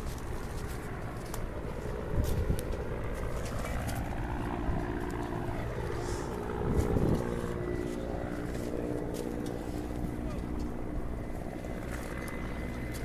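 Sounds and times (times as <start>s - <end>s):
steady engine drone: 0.0s - 13.0s.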